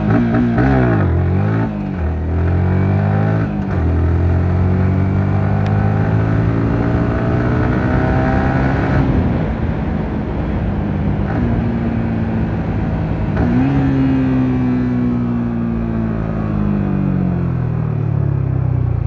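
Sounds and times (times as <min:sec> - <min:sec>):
motorcycle engine running: 0:00.0 - 0:19.0
wind noise: 0:05.7 - 0:15.2.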